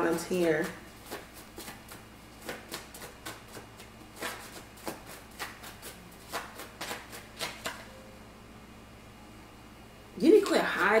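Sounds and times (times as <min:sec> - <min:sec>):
cards being shuffled: 0:00.6 - 0:07.9.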